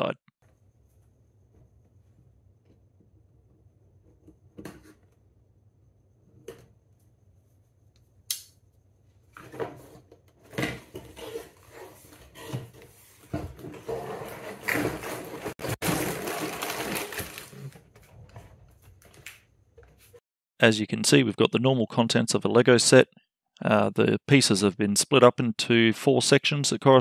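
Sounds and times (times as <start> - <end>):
plastic bags rustling and rattling: 13.8 - 18.0.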